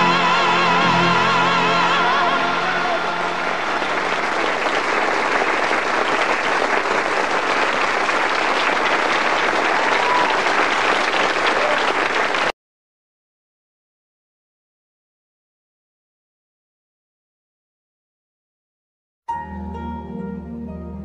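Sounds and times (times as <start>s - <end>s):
audience applauding: 2.8s - 12.5s.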